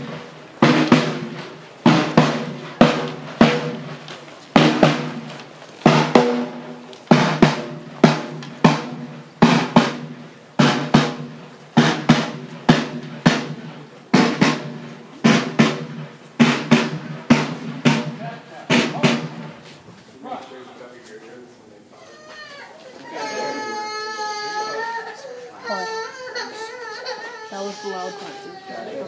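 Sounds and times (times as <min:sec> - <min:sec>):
snare drum marching cadence: 0:00.0 - 0:20.4.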